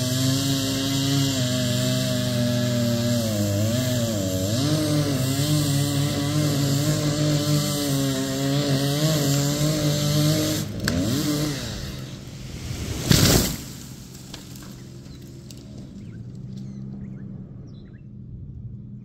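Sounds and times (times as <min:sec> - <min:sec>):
chainsaw cutting tree trunk: 0:00.0 - 0:16.8
rush of tree falling: 0:10.7 - 0:16.0.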